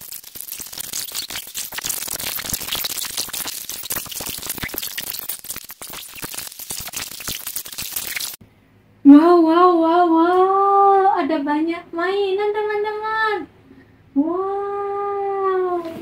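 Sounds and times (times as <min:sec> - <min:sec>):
plastic toys and balls clattering: 0:00.0 - 0:08.4.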